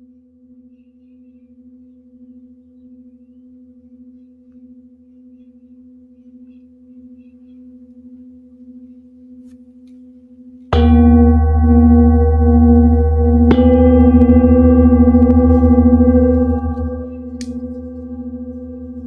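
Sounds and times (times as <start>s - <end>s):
singing bowl ringing: 10.8s - 19.0s
singing bowl struck with mallet: 10.8s - 19.0s.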